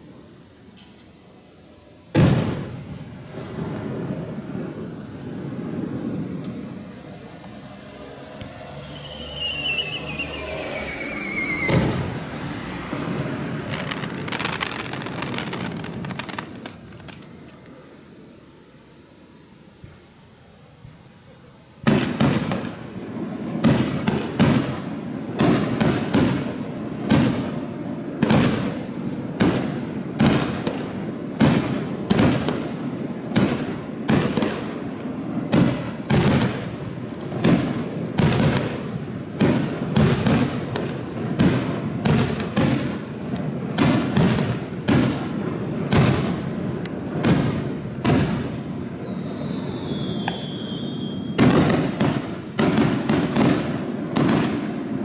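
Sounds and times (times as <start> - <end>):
firework shells bursting: 2.1 - 17.7, 33.3 - 54.8.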